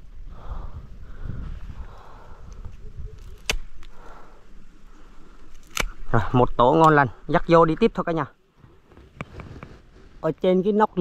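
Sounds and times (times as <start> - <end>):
sharp click: 3.2 - 3.9
rustling through brush: 8.6 - 11.0.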